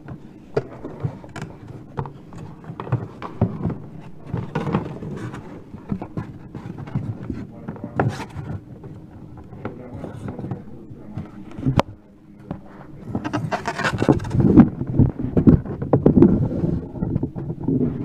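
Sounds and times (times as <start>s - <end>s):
cable scraping against cardboard box: 4.0s - 8.6s, 13.0s - 14.6s.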